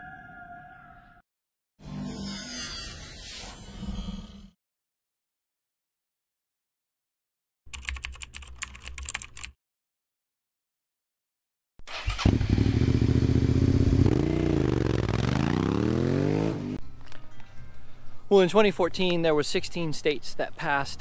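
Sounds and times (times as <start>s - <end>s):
motorcycle engine accelerating: 11.9s - 16.8s.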